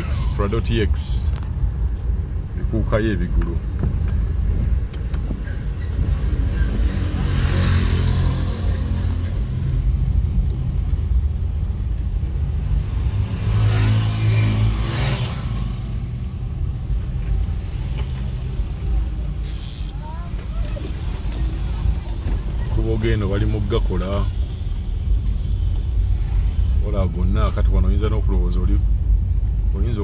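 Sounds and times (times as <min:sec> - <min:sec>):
vehicle rumbling on dirt road: 0:00.0 - 0:30.0
motorcycles passing: 0:06.2 - 0:10.7, 0:12.5 - 0:23.0.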